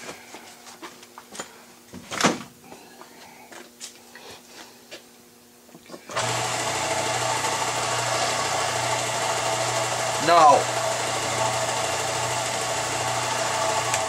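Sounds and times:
electric machine humming: 5.9s - 14.0s.

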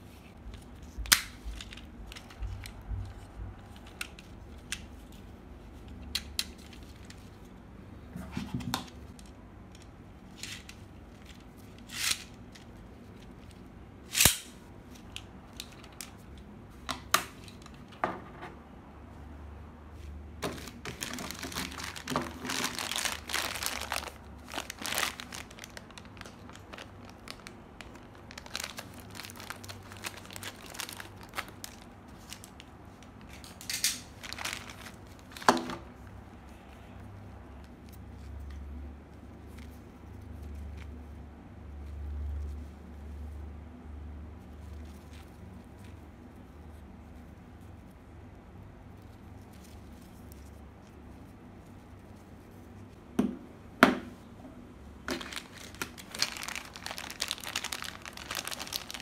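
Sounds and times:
plastic bags crinkling: 20.4s - 35.9s, 55.0s - 59.0s.

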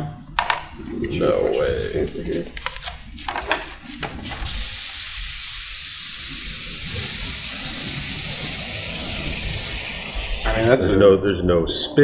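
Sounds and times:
airbrush spraying hiss: 4.4s - 10.8s.

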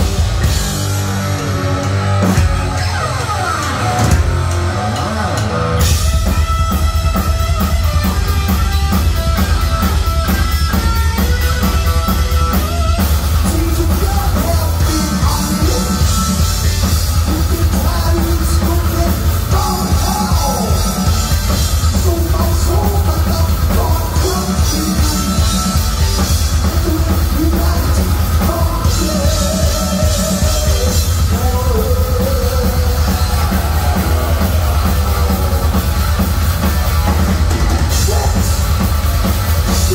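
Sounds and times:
bass guitar: 0.0s - 39.9s
distorted electric guitar: 0.0s - 39.9s
drum kit with cymbals: 0.0s - 39.9s
person singing: 13.4s - 21.2s, 26.6s - 36.0s, 37.8s - 38.6s.

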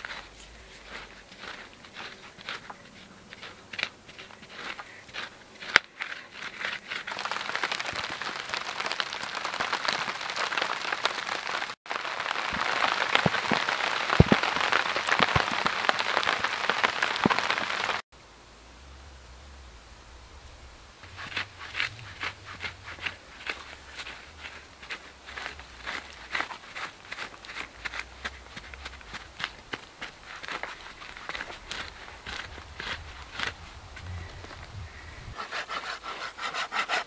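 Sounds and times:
stick scraping into soil: 0.0s - 8.2s, 21.0s - 37.0s
rain pattering on a tarp: 4.6s - 18.0s, 21.0s - 34.6s.

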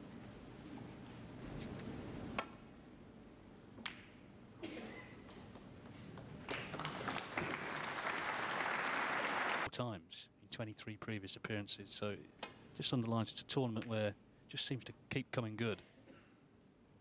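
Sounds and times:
audience applause: 6.5s - 9.7s.

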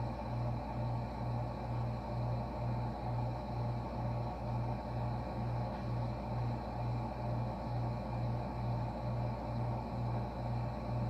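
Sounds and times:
pulsing mechanical hum: 0.0s - 11.0s.

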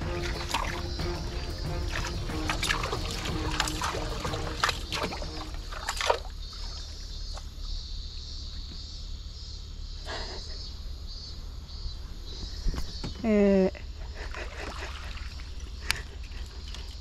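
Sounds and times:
water trickling against rocks: 0.0s - 7.5s.

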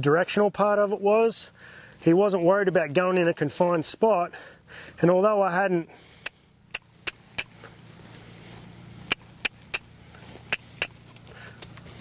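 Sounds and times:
tongue clicks: 6.2s - 7.6s, 9.1s - 9.9s, 10.5s - 11.0s.

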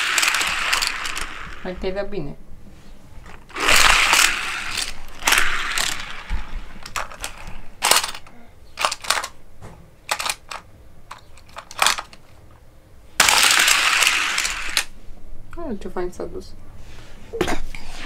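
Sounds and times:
toy cars and track clattering: 0.0s - 1.6s, 3.5s - 9.4s, 10.1s - 12.3s, 13.2s - 14.9s
scraping rattle: 3.2s - 9.3s
sharp plastic clicks: 3.5s - 9.4s, 10.1s - 12.2s.

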